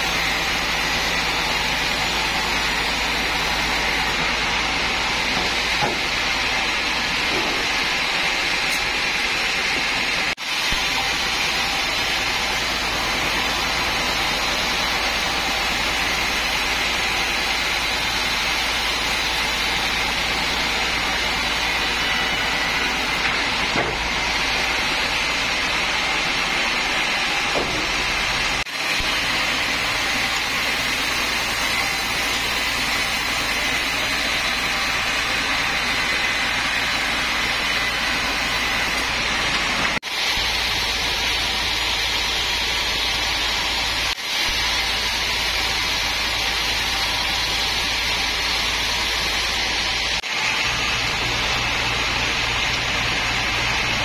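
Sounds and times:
band saw cutting log: 0:00.0 - 0:54.0.

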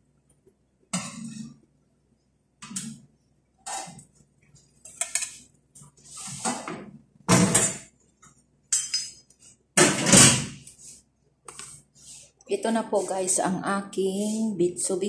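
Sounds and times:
pan and utensils clattering: 0:06.2 - 0:07.9, 0:08.7 - 0:10.6.

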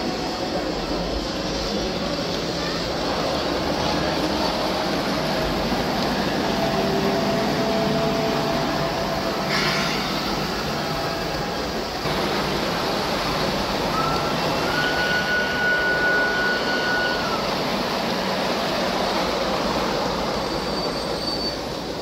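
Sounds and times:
model train running on track: 0:00.0 - 0:22.0
thin high whine: 0:06.2 - 0:19.0.

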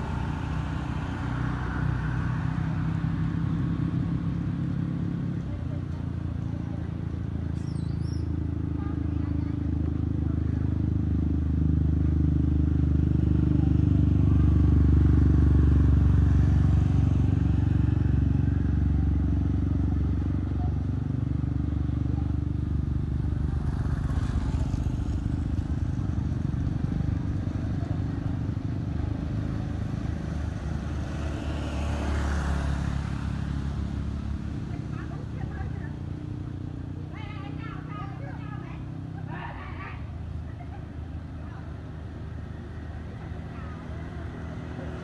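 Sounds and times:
traffic passing: 0:00.0 - 0:45.0
vehicle engine humming: 0:00.0 - 0:45.0.

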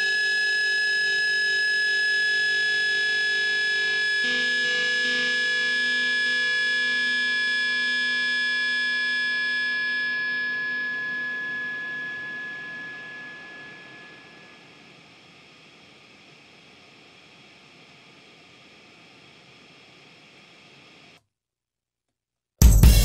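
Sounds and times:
high held tone: 0:00.0 - 0:15.4
drone music with held chord: 0:00.1 - 0:14.9.

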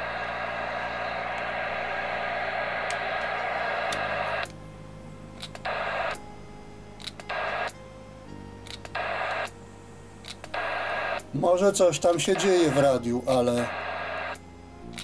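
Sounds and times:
radio static hiss: 0:00.0 - 0:15.0
sharp clicks: 0:05.4 - 0:06.2, 0:07.0 - 0:07.8, 0:08.6 - 0:09.6, 0:10.2 - 0:11.4, 0:14.2 - 0:15.0.

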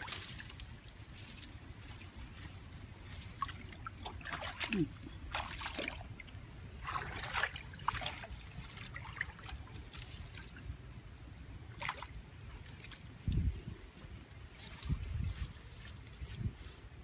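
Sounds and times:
leafy branches rustling: 0:00.0 - 0:17.0
water trickling: 0:03.1 - 0:13.4.

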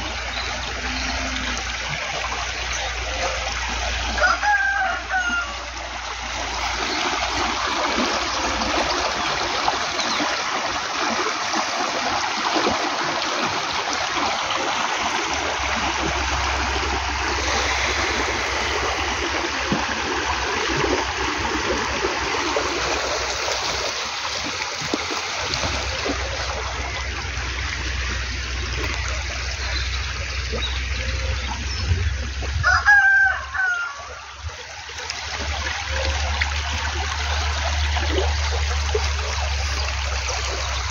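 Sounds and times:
water rushing in a ditch: 0:00.0 - 0:40.9
rooster crowing: 0:04.2 - 0:06.0, 0:32.6 - 0:34.3
wind rumbling on microphone: 0:31.3 - 0:34.8.

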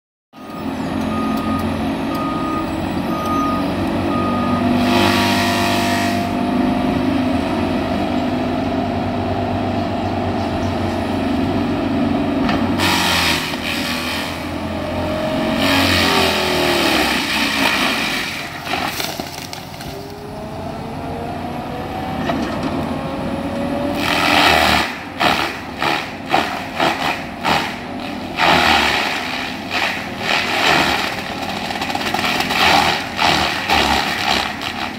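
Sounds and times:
short beeps: 0:00.4 - 0:04.7
excavator engine droning: 0:00.4 - 0:34.9
mulcher chipping wood: 0:15.4 - 0:19.9, 0:24.0 - 0:34.9.

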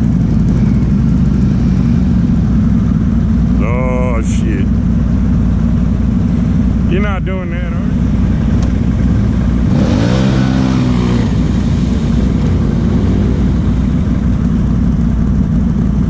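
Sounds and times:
atv engine idling: 0:00.0 - 0:16.0
atv engine revving up: 0:08.6 - 0:14.7.

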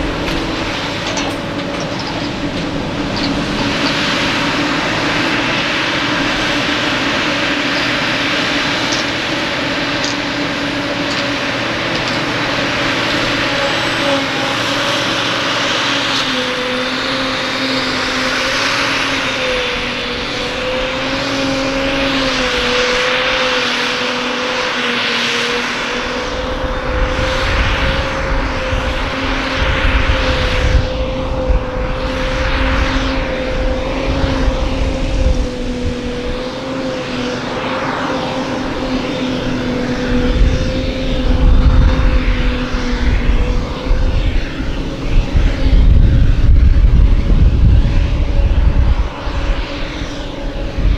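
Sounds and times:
harvester engine drone with whine: 0:00.0 - 0:50.9
deep rumble: 0:39.9 - 0:50.9.

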